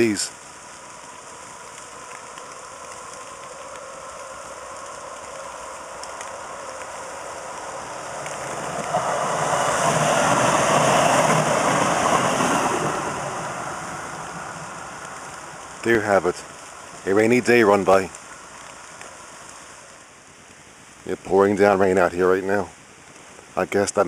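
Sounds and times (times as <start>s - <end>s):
steady rain hiss: 0.0s - 24.0s
light rail train passing: 4.3s - 15.8s.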